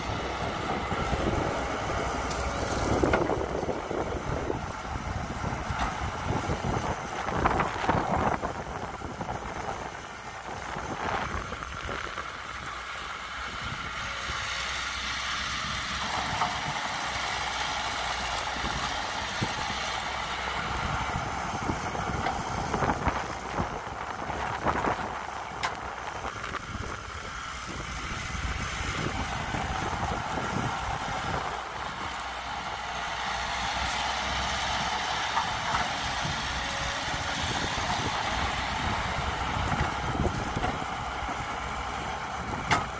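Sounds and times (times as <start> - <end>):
excavator diesel engine working: 0.0 - 42.9.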